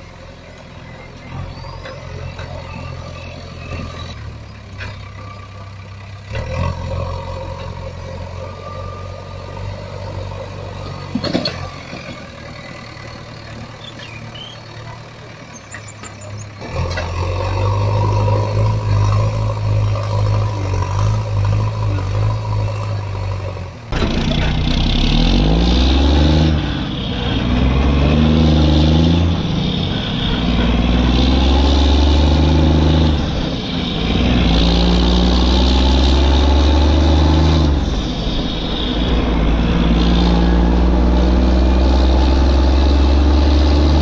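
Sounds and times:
engine humming: 0.0 - 44.0.

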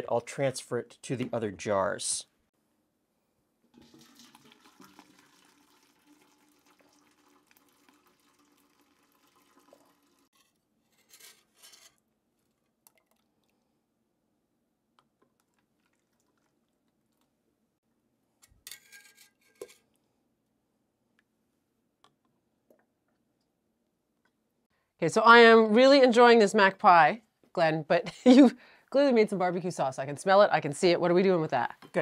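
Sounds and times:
liquid pouring through strainer: 3.7 - 10.6
metal ladle scraping pot: 10.3 - 12.0, 18.6 - 19.8.

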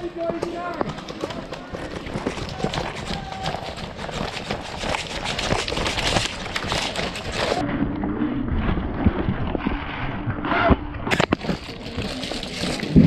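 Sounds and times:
clothing and kit rustling: 0.0 - 7.7, 10.5 - 13.0
footsteps: 0.0 - 7.8.

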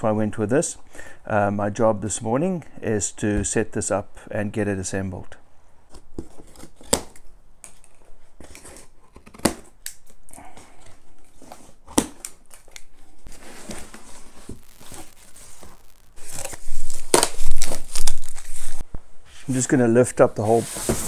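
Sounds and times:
cardboard and plastic crinkling: 11.0 - 18.8
strapping rustling: 12.6 - 18.9
packing straps snapping: 15.8 - 18.8.

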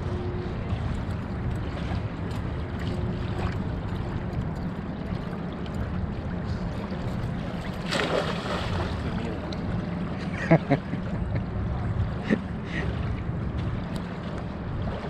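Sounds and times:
low background rumble: 0.0 - 15.0
fish splashing into water: 7.7 - 9.2.

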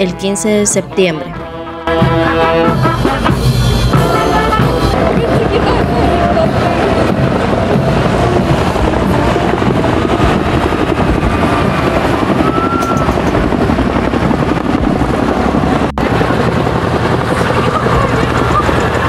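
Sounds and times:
helicopter rotors beating: 0.0 - 19.0.

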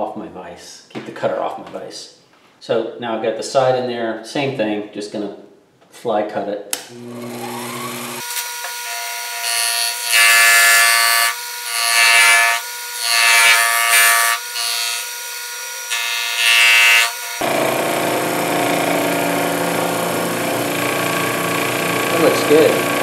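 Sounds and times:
fly cutter cutting metal: 6.8 - 23.0
milling machine whining: 6.9 - 9.4, 17.2 - 23.0.

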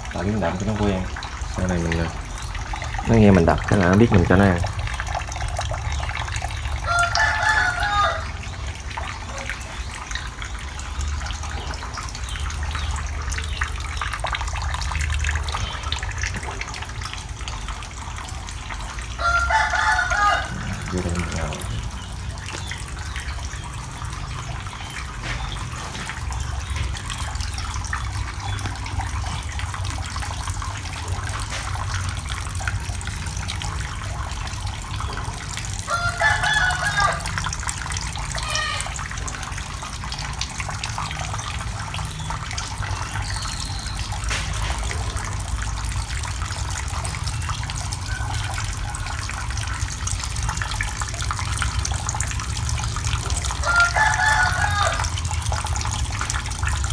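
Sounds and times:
water rushing through pipes: 0.0 - 56.9
rooster crowing: 6.8 - 8.4, 19.2 - 21.7, 35.8 - 37.4, 53.6 - 55.2.

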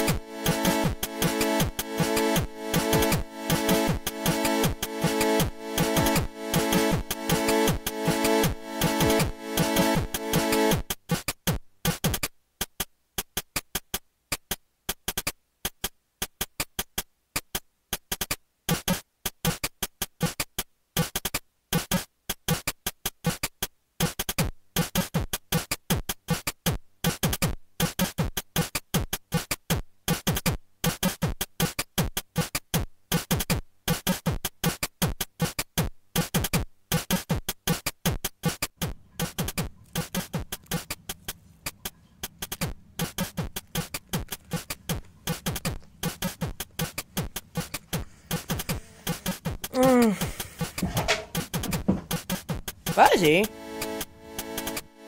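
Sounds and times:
electronic music with drum-machine beat: 0.0 - 11.0, 41.8 - 55.0.

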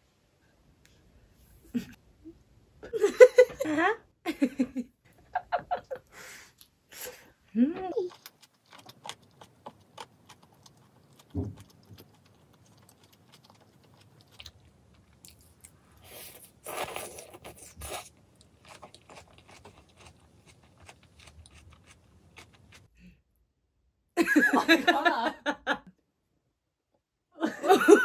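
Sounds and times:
close chewing and crunching: 8.0 - 22.9
soft thump: 11.4 - 11.7.

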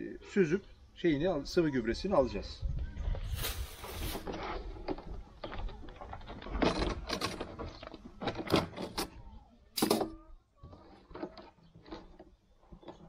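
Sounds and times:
metal clamps clanking on plastic drums: 6.2 - 9.2.

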